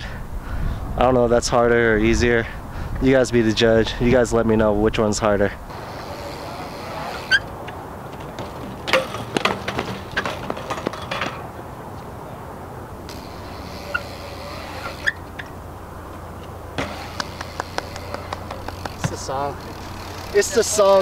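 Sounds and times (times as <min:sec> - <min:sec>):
wind noise on microphone: 0:00.0 - 0:08.5
bike clattering on concrete: 0:05.7 - 0:12.2, 0:13.0 - 0:21.0.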